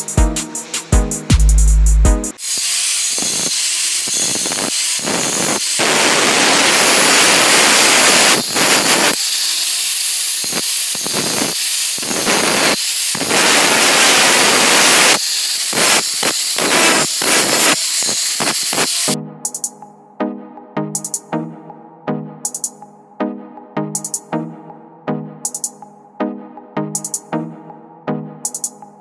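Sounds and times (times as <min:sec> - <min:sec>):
angle grinder cutting steel pipe: 0:02.4 - 0:19.2.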